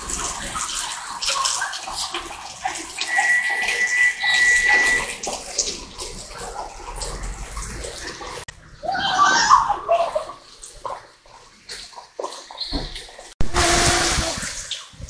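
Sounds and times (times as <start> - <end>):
rain splashing on wet street: 0.0 - 8.2.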